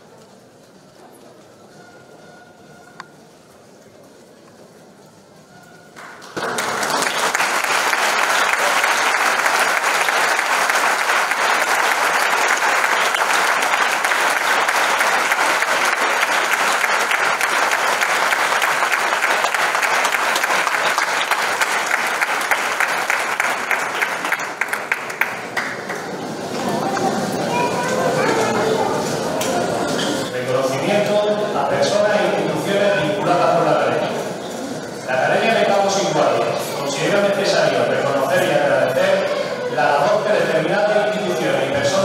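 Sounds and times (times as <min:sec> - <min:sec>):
audience applauding: 0:06.0 - 0:27.4.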